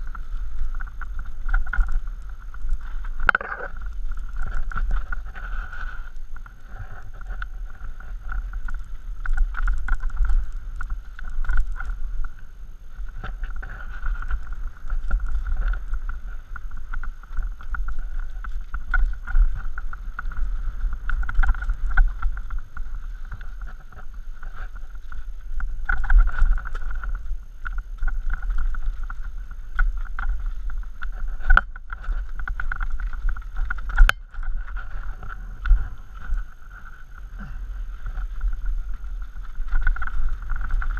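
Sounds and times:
bike rattling: 0.0 - 40.9
wind buffeting microphone: 0.0 - 40.9.

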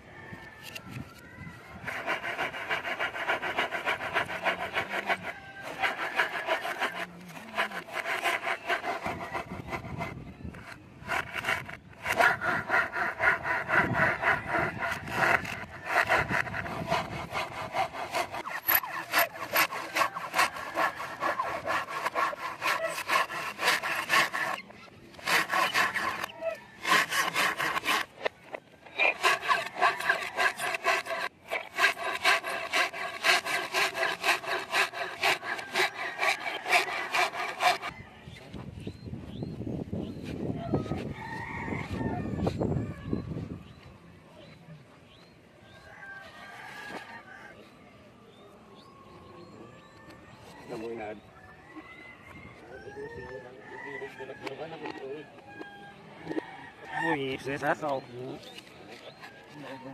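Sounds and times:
hand saw cutting wood: 1.8 - 37.9.

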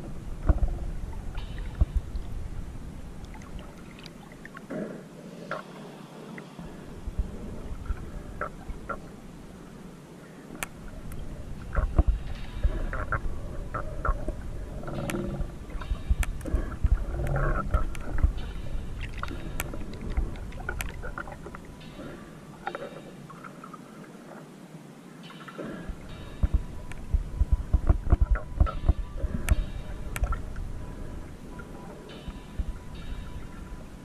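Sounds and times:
sharp underwater clicks: 0.0 - 4.8, 10.5 - 23.8, 25.3 - 34.0
muffled underwater rumble: 0.0 - 24.5, 25.5 - 34.0.

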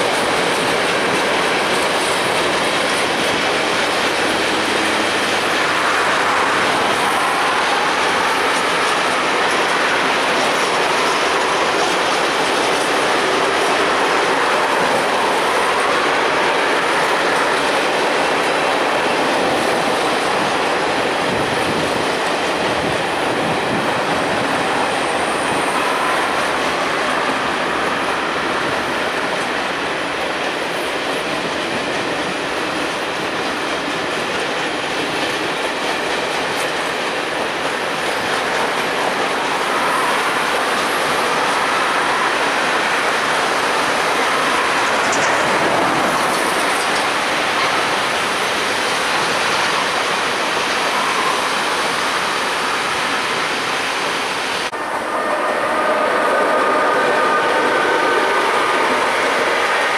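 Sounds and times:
freight train rolling past: 0.0 - 59.9.

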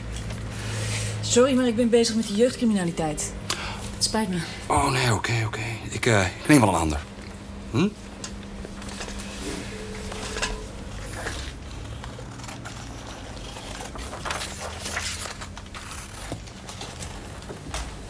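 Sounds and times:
steady low hum: 0.0 - 18.0
faint clicks and rustles: 11.4 - 18.0.

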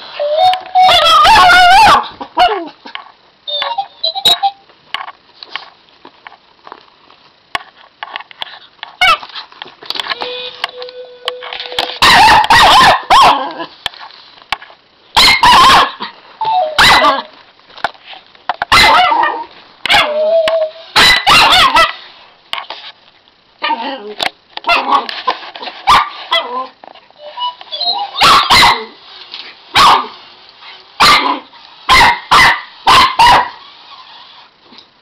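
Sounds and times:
robot toy electronic beeps: 3.5 - 4.6, 10.2 - 12.0, 27.2 - 28.2
puppy barking: 12.0 - 13.6, 15.2 - 17.3, 18.7 - 20.2, 21.0 - 22.0, 24.7 - 25.1, 25.9 - 26.7, 27.8 - 29.0, 29.8 - 30.2, 31.0 - 33.6.

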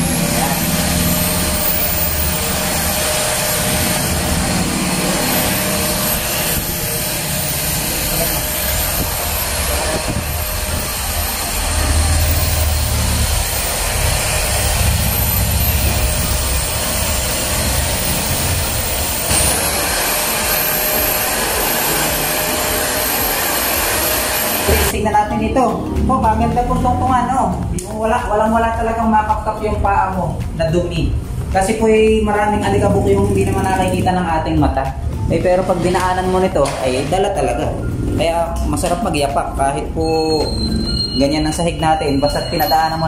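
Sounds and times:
vacuum cleaner running: 0.0 - 25.0.

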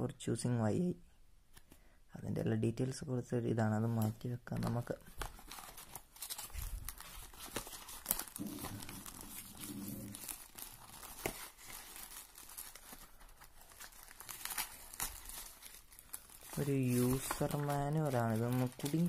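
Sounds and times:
paper and packaging crinkling: 4.0 - 19.0.

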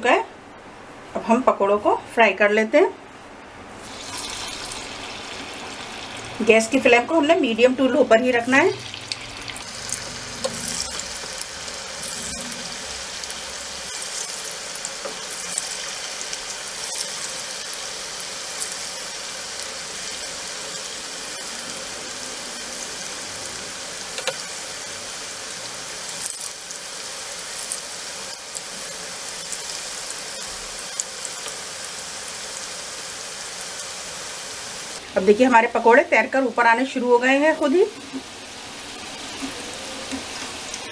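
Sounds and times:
oil sizzling in pan: 3.8 - 6.6, 8.2 - 35.7, 36.5 - 40.9
crackles and pops of frying: 8.6 - 22.1, 22.7 - 35.0, 39.2 - 40.9.

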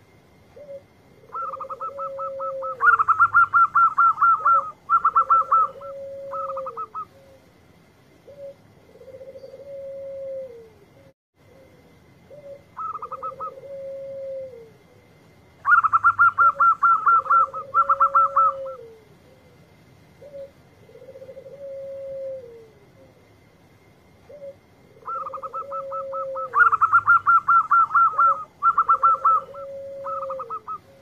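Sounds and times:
dove long drawn-out coo: 0.0 - 31.0
doves trilling rapidly: 0.6 - 7.4, 12.4 - 14.6, 15.6 - 19.0, 24.3 - 31.0.

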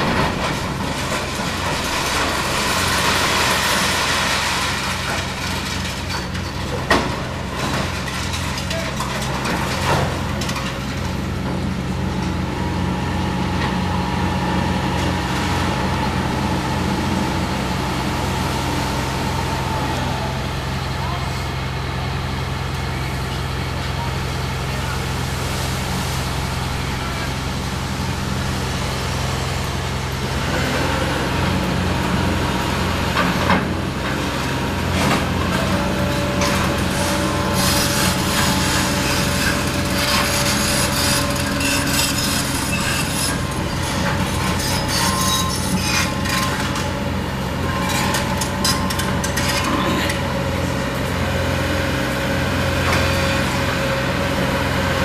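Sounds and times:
debris crunching and clattering: 0.0 - 11.2
excavator diesel engine running: 0.0 - 55.0
street traffic passing: 10.1 - 45.0, 45.6 - 55.0.

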